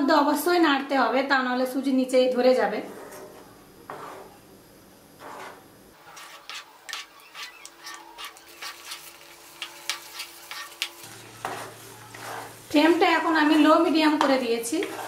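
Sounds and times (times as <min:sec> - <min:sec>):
semolina simmering: 0:02.4 - 0:15.0
spatula scraping a pan: 0:02.8 - 0:04.4, 0:05.2 - 0:15.0.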